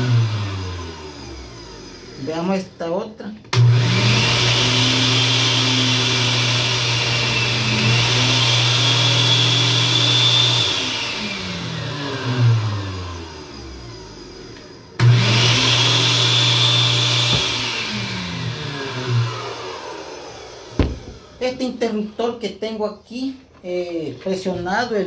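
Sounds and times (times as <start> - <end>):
blender motor running: 0.0 - 2.7, 3.5 - 21.9.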